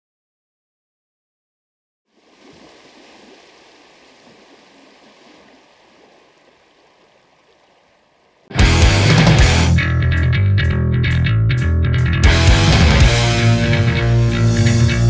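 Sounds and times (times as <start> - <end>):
rushing water: 2.1 - 8.6.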